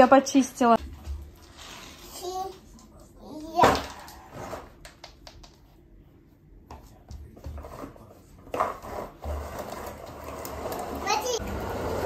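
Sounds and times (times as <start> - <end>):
plastic wheels rolling on wood: 7.6 - 12.0.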